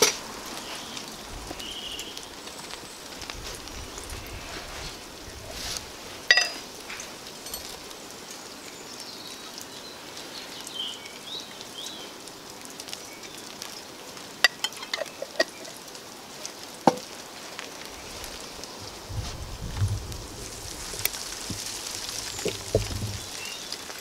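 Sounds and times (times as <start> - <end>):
steady crackling hiss: 0.0 - 24.0
jars and cookware clinking: 6.3 - 6.6, 7.4 - 7.8, 14.4 - 15.8.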